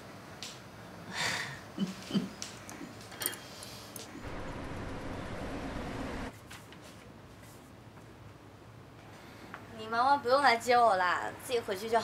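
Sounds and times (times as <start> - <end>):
street traffic hum: 3.6 - 6.3.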